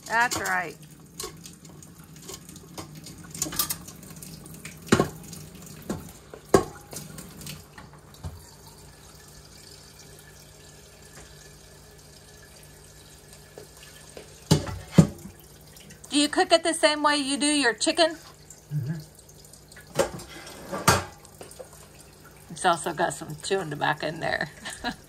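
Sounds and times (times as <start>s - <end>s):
tap running into metal pot: 4.9s - 5.2s, 5.8s - 7.0s, 13.6s - 15.2s.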